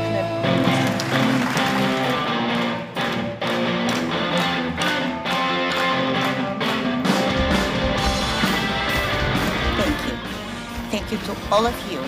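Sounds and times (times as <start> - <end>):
electric guitar: 0.0 - 12.0
drum beat: 7.1 - 12.0.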